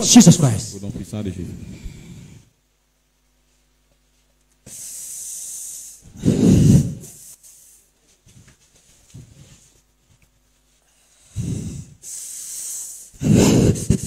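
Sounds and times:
breath hissing into microphone: 0:04.6 - 0:07.9, 0:10.9 - 0:14.0
breath popping microphone: 0:04.7 - 0:07.8.

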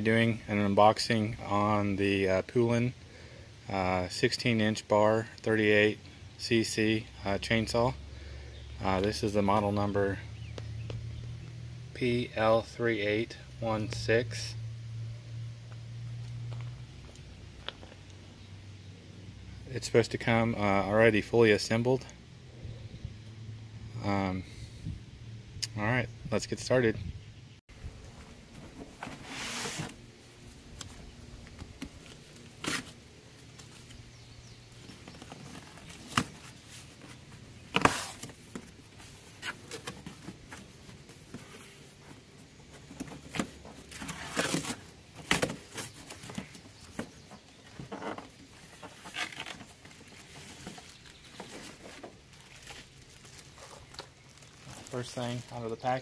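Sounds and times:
cardboard scraping and rustling: 0:28.1 - 0:34.0, 0:34.8 - 0:55.5
cardboard flaps tearing: 0:43.2 - 0:46.5.

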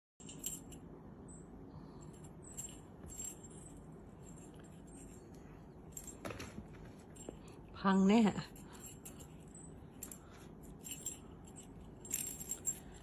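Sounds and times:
toy rattling and clicking: 0:00.2 - 0:00.9, 0:02.0 - 0:06.4, 0:08.3 - 0:13.0
steady low hum: 0:00.2 - 0:13.0.

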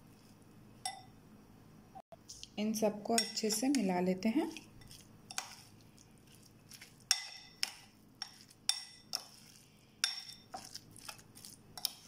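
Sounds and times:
metal spoon clinking glass bowl: 0:00.8 - 0:01.1, 0:03.1 - 0:03.8, 0:07.1 - 0:11.2.

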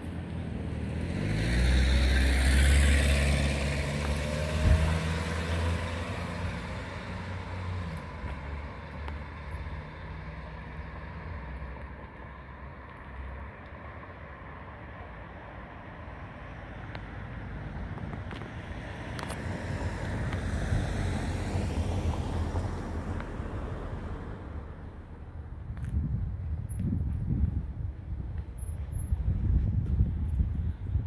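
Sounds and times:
vehicle driving past: 0:00.7 - 0:11.6.

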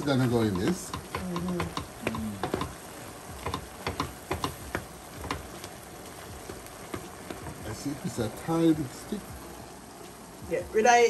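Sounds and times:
low sizzle: 0:00.0 - 0:11.0
spatula knocking against pan: 0:00.2 - 0:02.8, 0:03.4 - 0:05.5.

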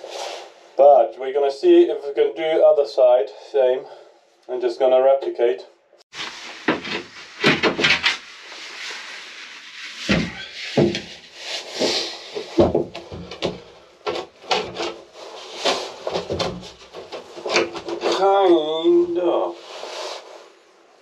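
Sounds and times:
wood rubbing and scraping: 0:06.1 - 0:20.3
wooden knocks of plywood: 0:12.6 - 0:15.0.

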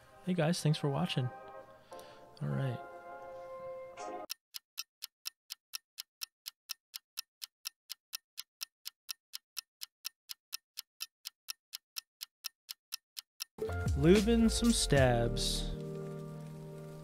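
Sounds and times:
sharp ticks: 0:04.3 - 0:13.6.

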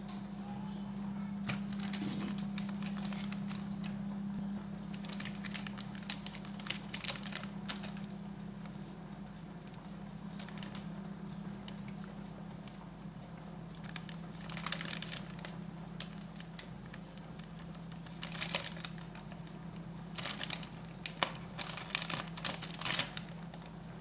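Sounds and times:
steady low hum: 0:00.0 - 0:24.0
plastic packet crinkling: 0:01.5 - 0:04.0, 0:04.8 - 0:08.2, 0:10.3 - 0:10.8, 0:13.8 - 0:23.8.

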